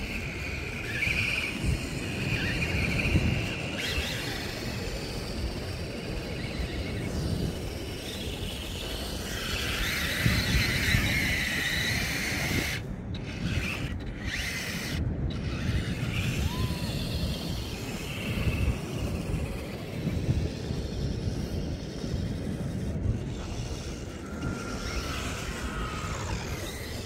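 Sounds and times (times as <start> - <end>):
high motor whine: 0.0 - 27.0
model car rubbing and rattling: 0.0 - 27.0.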